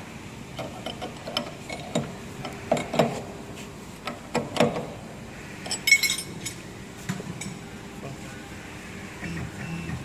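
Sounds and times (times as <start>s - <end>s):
spanners clicking and knocking: 0.6s - 3.2s.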